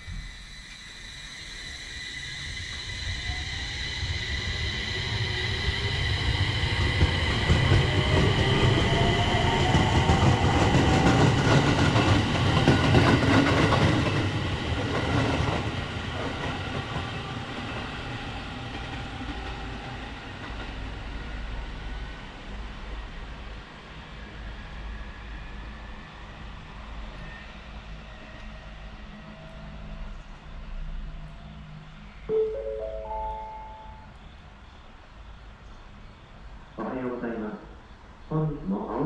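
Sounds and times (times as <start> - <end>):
train wheels clattering on rails: 6.3 - 21.6.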